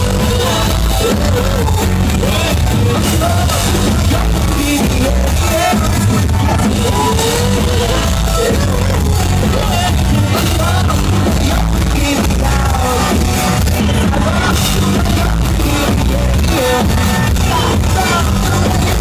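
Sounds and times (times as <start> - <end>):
rock band playing: 0.0 - 19.0
singer's vocals: 0.0 - 19.0.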